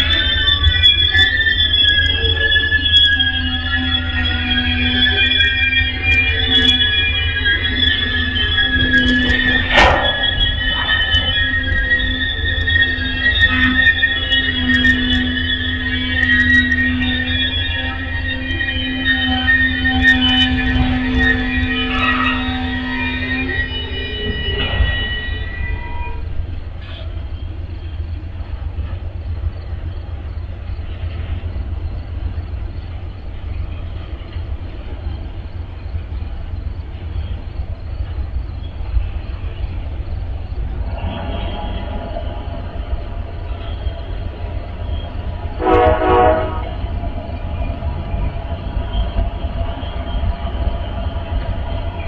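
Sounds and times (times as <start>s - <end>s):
low rumble of trains: 0.0s - 52.0s
train horn blast: 45.3s - 47.2s
faint horn-like tone: 45.6s - 47.0s.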